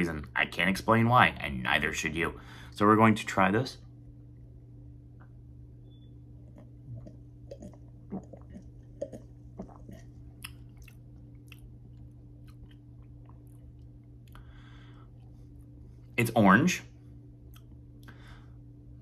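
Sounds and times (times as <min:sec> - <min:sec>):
person sipping and swallowing: 0:06.4 - 0:15.4
wet mouth clicks and lip smacks: 0:06.6 - 0:14.4.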